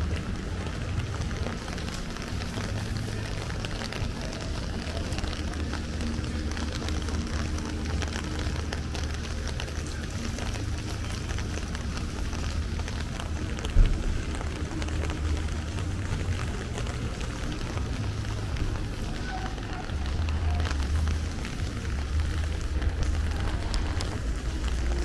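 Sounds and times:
rain pattering: 0.0 - 25.0
steady low rumble: 0.0 - 25.0.

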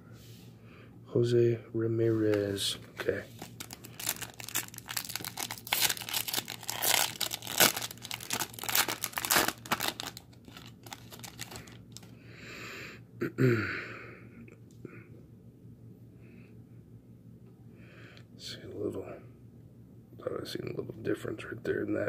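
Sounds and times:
cards rustling: 2.3 - 12.1
foil wrapper tearing and crinkling: 3.3 - 12.1.

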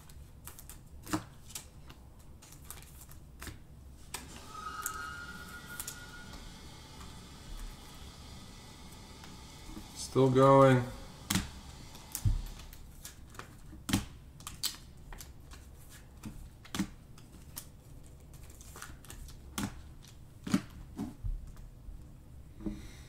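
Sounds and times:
plastic sleeves and cards crinkling: 0.0 - 3.6, 14.4 - 20.2.

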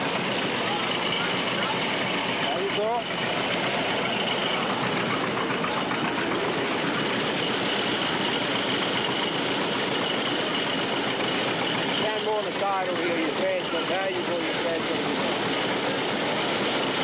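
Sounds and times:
machine running: 0.0 - 17.0.

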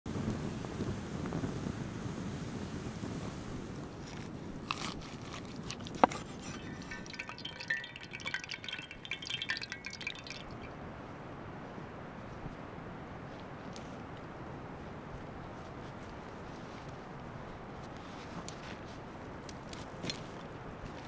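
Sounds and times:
food frying in hot oil: 0.1 - 10.7.

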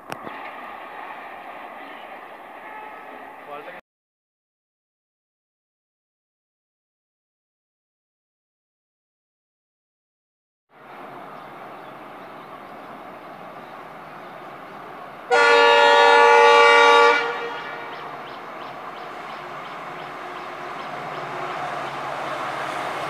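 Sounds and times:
train rumbling: 0.0 - 3.8, 10.8 - 23.0
locomotive horn blast: 15.3 - 18.2.

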